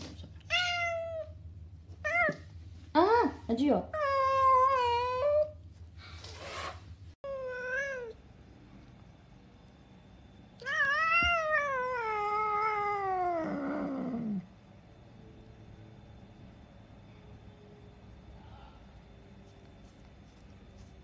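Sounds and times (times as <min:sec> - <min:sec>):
cat yowling and growling: 0:10.6 - 0:14.5.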